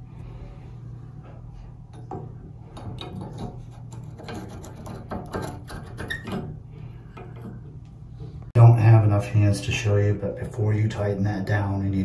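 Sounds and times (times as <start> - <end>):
low steady hum: 0.0 - 12.0
metal clicks and scrapes: 2.7 - 7.8.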